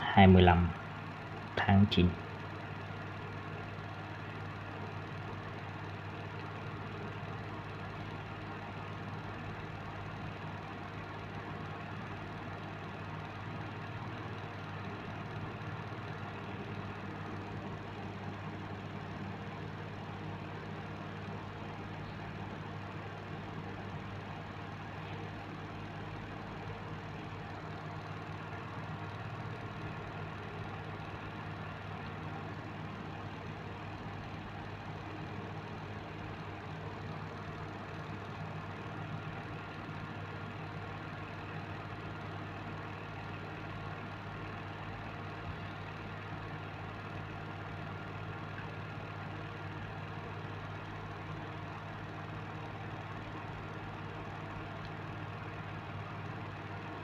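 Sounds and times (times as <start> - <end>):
low machine hum: 0.0 - 57.0.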